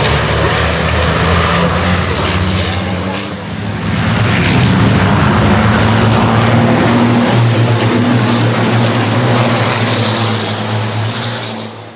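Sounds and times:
racing truck engines: 0:00.0 - 0:11.9.

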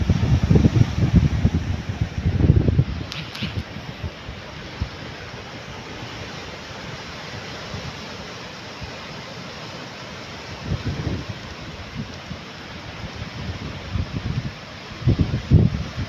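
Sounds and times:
wind bumps on microphone: 0:00.0 - 0:05.0, 0:10.6 - 0:12.1, 0:13.1 - 0:16.0
small waves breaking on sand: 0:00.0 - 0:16.0.

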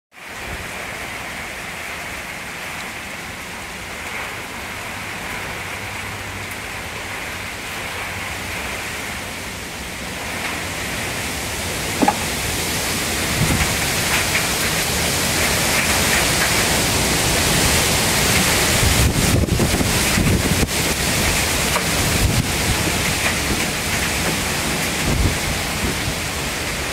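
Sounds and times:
heavy rain pouring: 0:00.1 - 0:26.9
sharp knock: 0:12.0 - 0:12.4.

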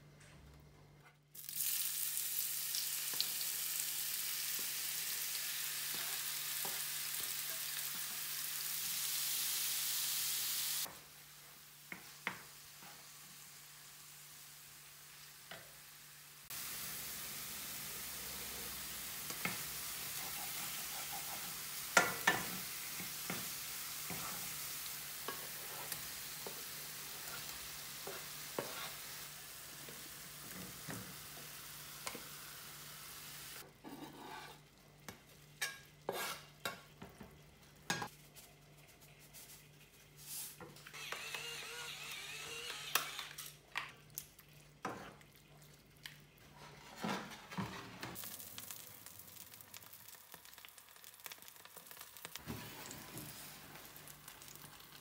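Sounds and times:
vegetables sizzling in a frying pan: 0:01.4 - 0:38.4, 0:46.9 - 0:55.0
wooden spoon scraping a pan: 0:19.4 - 0:22.6, 0:25.2 - 0:29.1, 0:33.8 - 0:34.7, 0:35.6 - 0:36.7, 0:46.4 - 0:48.2.

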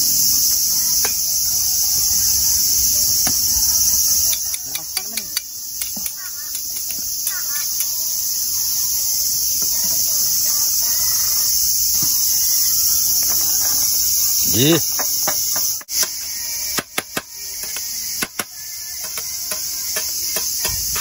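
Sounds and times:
cicadas chorus: 0:00.0 - 0:21.0
metal tongs clicking on griddle: 0:04.3 - 0:08.0.

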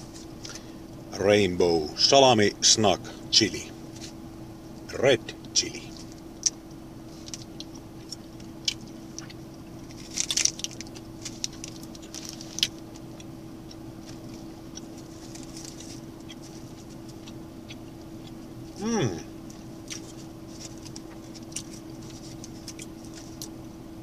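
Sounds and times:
steady low hum: 0:00.0 - 0:24.0
plastic wrapper crinkling: 0:09.9 - 0:12.8.

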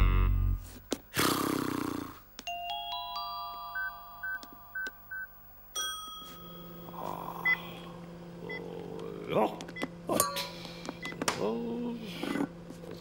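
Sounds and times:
cartoon music bell-like notes: 0:02.5 - 0:07.0
microwave humming: 0:02.6 - 0:13.0
microwave keypad beeps: 0:03.8 - 0:05.3.

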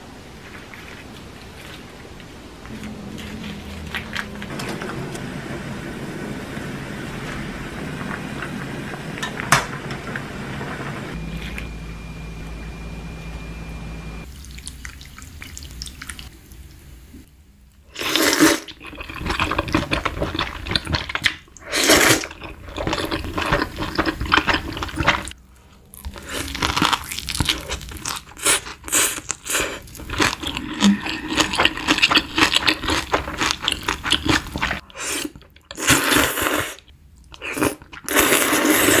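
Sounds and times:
chewing and crunching: 0:22.1 - 0:35.8
slurping noodles: 0:28.3 - 0:39.0.

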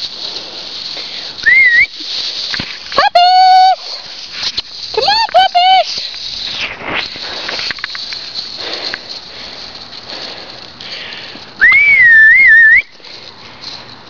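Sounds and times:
footsteps on dry grass: 0:00.0 - 0:11.6
person whistling: 0:01.4 - 0:01.9, 0:11.6 - 0:12.9.

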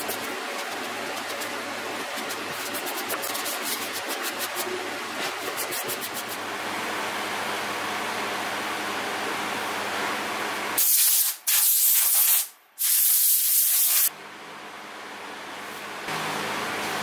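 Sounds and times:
sanding block rubbing wood: 0:00.0 - 0:06.4
air blow gun hissing: 0:10.8 - 0:14.1.

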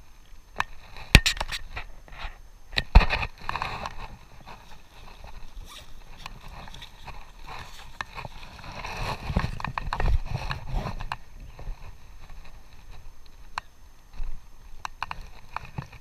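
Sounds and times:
clothing scuffing and rustling: 0:04.0 - 0:11.0.

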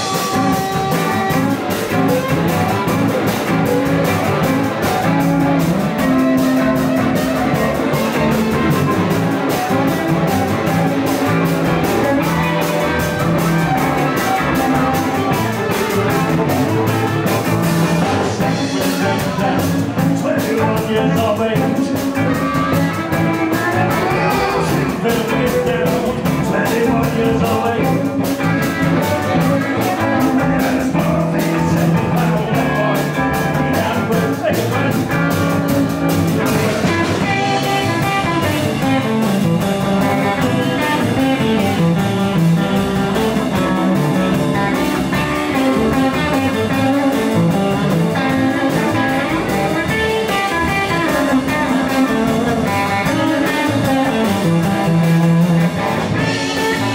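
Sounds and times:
blues band playing: 0:00.0 - 0:56.9
electric guitar: 0:00.0 - 0:56.9.

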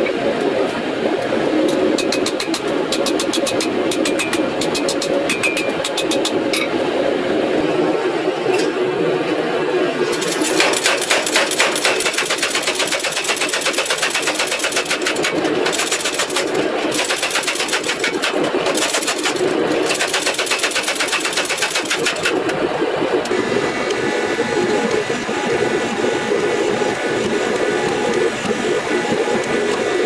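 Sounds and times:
steady low hum: 0:00.0 - 0:30.0
power hammer pounding steel: 0:01.7 - 0:06.7, 0:10.1 - 0:22.6.

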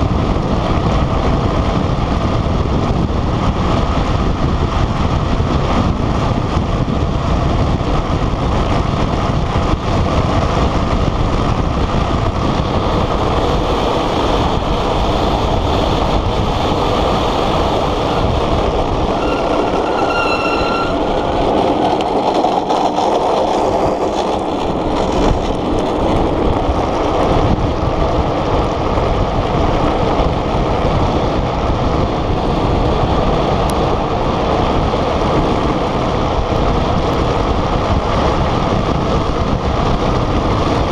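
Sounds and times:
wheels rolling on rough asphalt: 0:00.0 - 0:40.9
wind rushing over microphone: 0:00.0 - 0:40.9
high-pitched squeal: 0:18.9 - 0:22.0.

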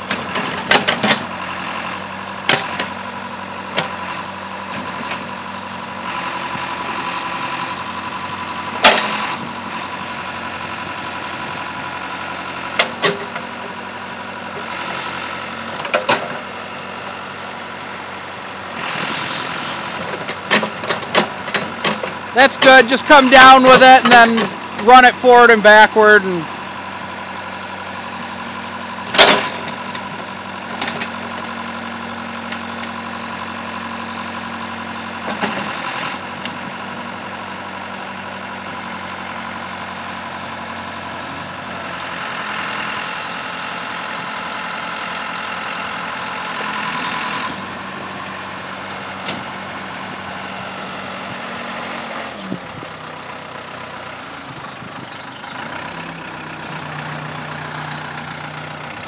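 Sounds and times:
backhoe engine running: 0:00.0 - 0:59.0
sharp metal clank: 0:29.1 - 0:29.7.

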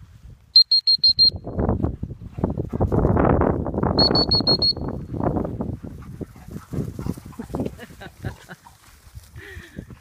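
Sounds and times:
short high electronic beeps: 0:00.6 - 0:01.5, 0:04.0 - 0:05.0.

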